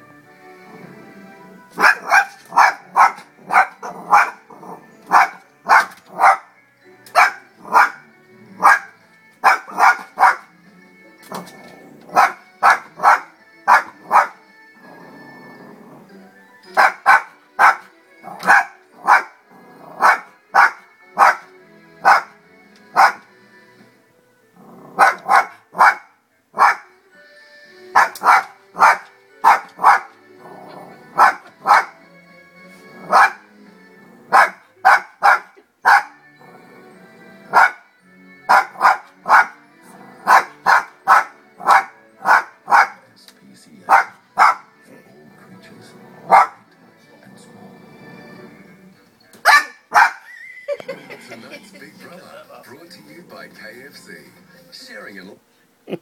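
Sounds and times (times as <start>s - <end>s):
advert music: 0.0s - 56.0s
small dog barking: 1.8s - 4.4s, 5.1s - 6.5s, 7.2s - 8.0s, 8.6s - 10.5s, 12.1s - 14.4s, 16.8s - 19.3s, 20.0s - 22.3s, 23.0s - 23.2s, 25.0s - 26.9s, 28.0s - 30.1s, 31.2s - 31.9s, 33.0s - 33.4s, 34.3s - 36.2s, 37.5s - 37.8s, 38.5s - 39.6s, 40.2s - 43.0s, 43.9s - 44.7s, 46.3s - 46.6s, 49.4s - 50.2s.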